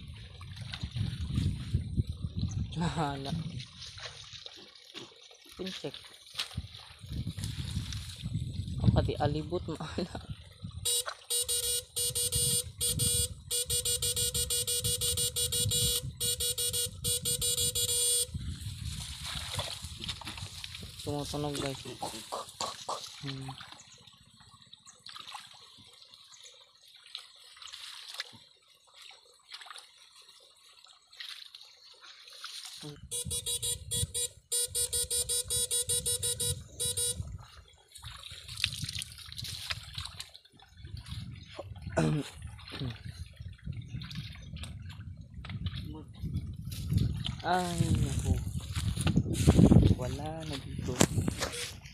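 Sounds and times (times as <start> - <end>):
water sloshing: 0.0 - 51.9
electrofishing rig buzzing pulses: 10.8 - 18.4, 33.0 - 37.4.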